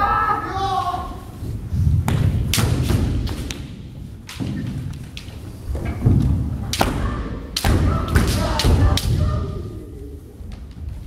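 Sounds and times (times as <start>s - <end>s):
bamboo swords clacking: 2.1s - 6.0s, 6.6s - 9.2s.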